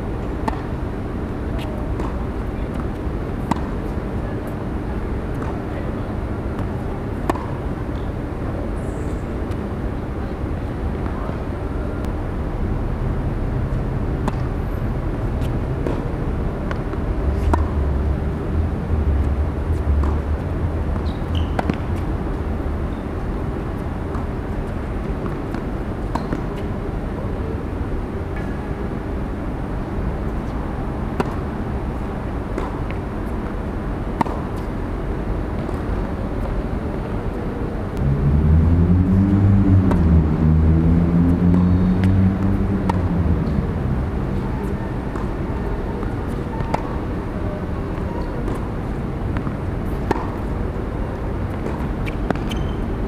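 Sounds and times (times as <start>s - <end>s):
city traffic rumble: 0.0s - 53.0s
tennis ball struck by rackets: 0.4s - 0.7s, 1.6s - 3.9s, 6.6s - 8.1s, 21.0s - 22.0s, 31.2s - 31.4s, 32.6s - 33.0s, 34.2s - 34.7s, 49.4s - 50.5s, 51.5s - 52.8s.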